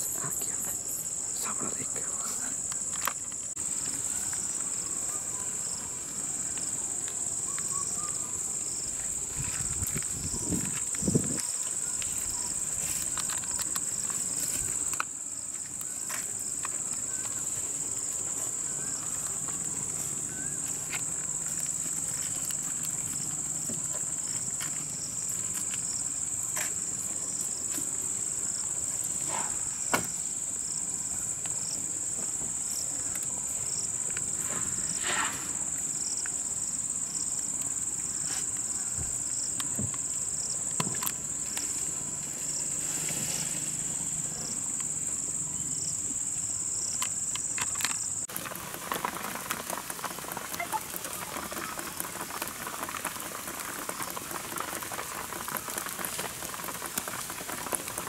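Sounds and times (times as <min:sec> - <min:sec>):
insects droning: 0:00.0 - 0:58.0
insect calling in short pulses: 0:49.2 - 0:58.0.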